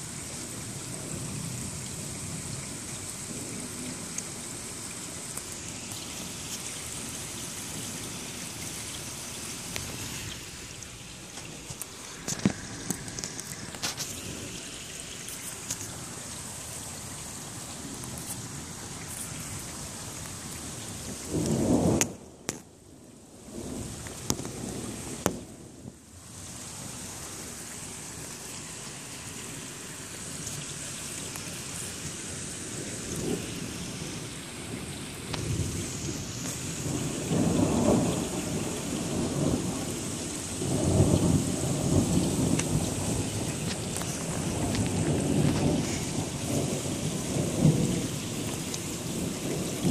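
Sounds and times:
raindrops ticking: 0.0s - 49.9s
steady rain: 0.0s - 49.9s
thunder rumbling: 17.2s - 22.5s, 32.6s - 49.9s.

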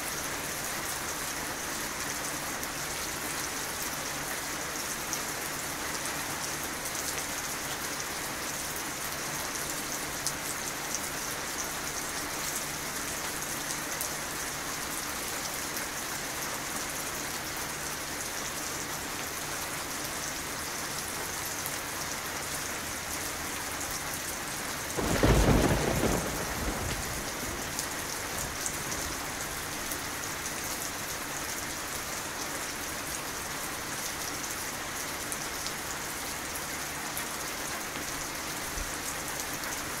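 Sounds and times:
steady rain falling: 0.0s - 40.0s
thunder clap rumbling: 25.0s - 29.6s.

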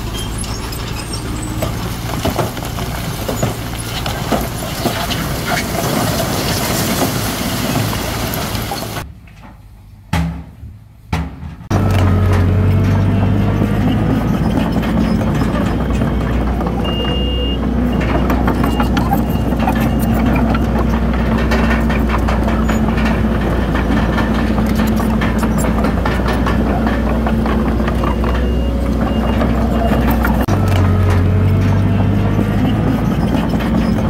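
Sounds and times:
metal clatter: 0.0s - 9.6s, 11.2s - 34.0s
diesel machinery running: 0.0s - 9.8s, 11.6s - 34.0s
reversing alarm beeping: 13.0s - 20.7s, 27.8s - 30.5s.

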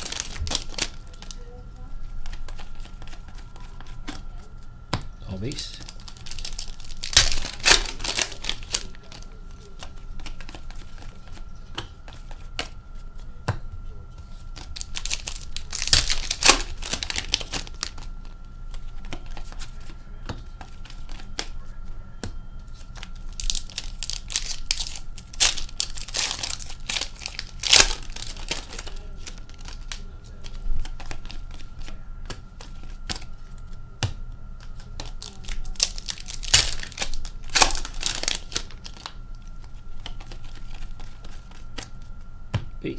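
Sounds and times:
card pack wrappers tearing: 0.0s - 1.5s, 5.4s - 11.4s, 14.5s - 19.9s, 22.7s - 33.3s, 34.6s - 42.0s
rustling of cards and wrappers: 0.0s - 4.5s, 5.4s - 13.3s, 14.2s - 21.9s, 22.6s - 33.8s, 34.6s - 42.2s.

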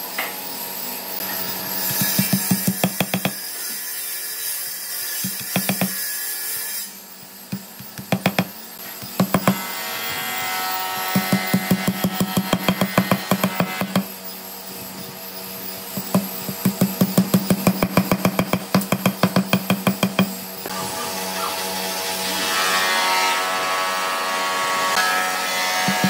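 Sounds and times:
sharp strokes on wood: 1.8s - 14.1s, 24.9s - 26.0s.

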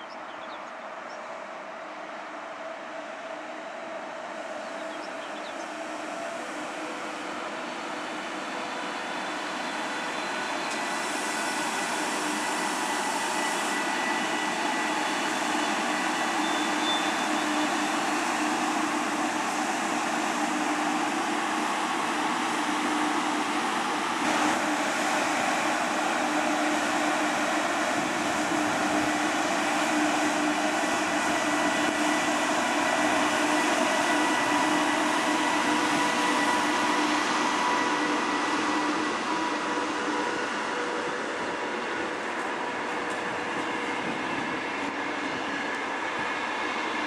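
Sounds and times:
train wheels rumbling on rails: 0.0s - 47.0s.

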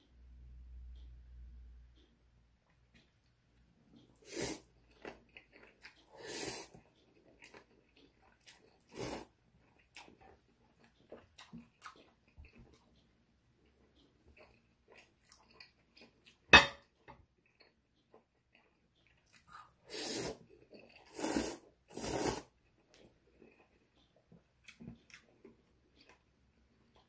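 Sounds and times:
wet chewing: 4.0s - 16.5s, 17.4s - 27.0s
person slurping noodles: 4.2s - 4.7s, 6.1s - 6.8s, 8.9s - 9.3s, 19.5s - 20.4s, 21.0s - 22.5s.

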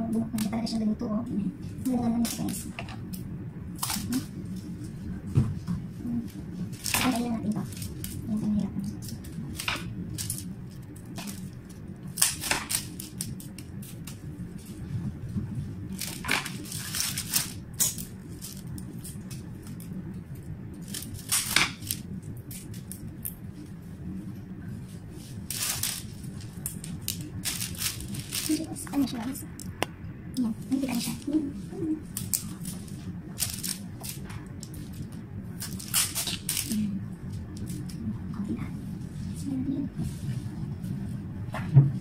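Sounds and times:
leaves and stems rustling: 0.0s - 29.8s, 30.4s - 41.2s.

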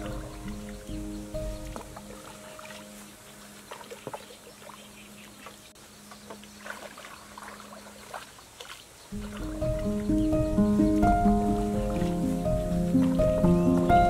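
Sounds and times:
paddle dipping in water: 0.0s - 14.0s
water trickling off paddle: 0.0s - 14.0s.

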